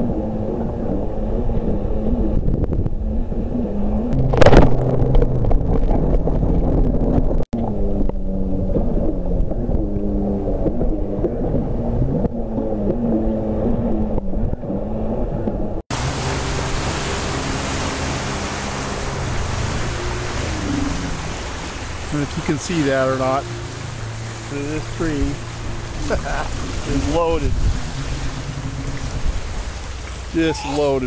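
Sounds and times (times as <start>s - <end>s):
jet ski engines: 0.0s - 31.0s
waves: 0.0s - 31.0s
wind noise: 0.0s - 31.0s
burst of water spray: 15.9s - 31.0s.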